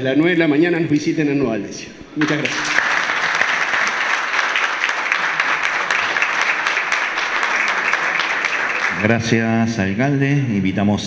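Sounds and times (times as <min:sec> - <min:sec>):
audience applauding: 0:02.2 - 0:09.4.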